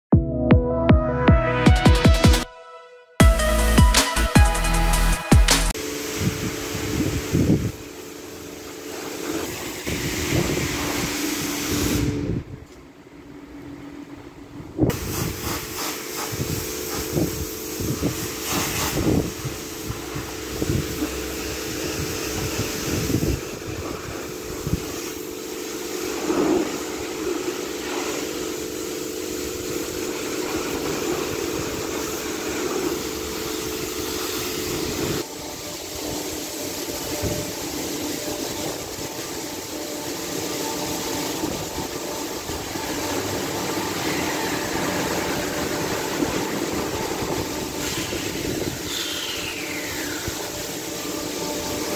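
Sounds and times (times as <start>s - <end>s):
spray hissing on a car: 5.7s - 12.4s, 14.8s - 51.9s
pump hum: 16.1s - 51.9s.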